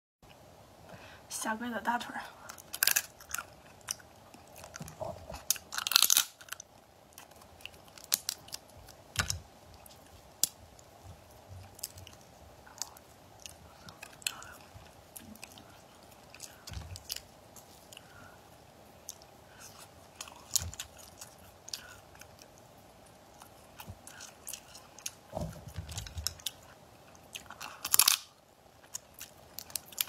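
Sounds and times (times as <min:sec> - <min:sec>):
chewing: 0:02.4 - 0:18.4, 0:19.0 - 0:30.0
crab shells cracking: 0:02.5 - 0:10.9, 0:25.8 - 0:30.0.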